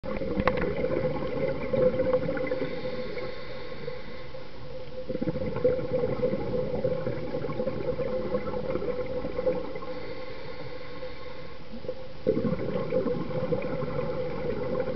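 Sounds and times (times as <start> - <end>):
bubbles gurgling: 0.0 - 3.3, 5.0 - 10.1, 11.7 - 14.9
steady underwater hum: 0.0 - 14.9.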